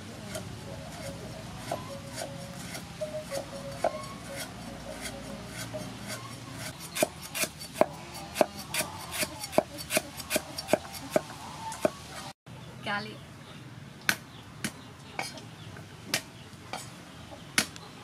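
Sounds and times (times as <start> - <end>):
knife chopping on wooden board: 5.0 - 12.0.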